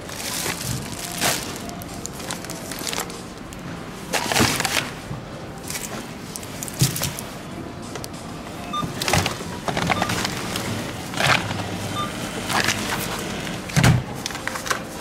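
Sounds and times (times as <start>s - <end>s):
packages knocking and rustling: 0.0s - 5.0s, 5.6s - 7.3s
steady background noise: 0.0s - 15.0s.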